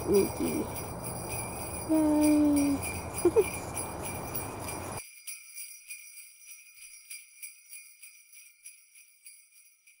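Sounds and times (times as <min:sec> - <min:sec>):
sleigh bells jingling: 0:00.0 - 0:10.0.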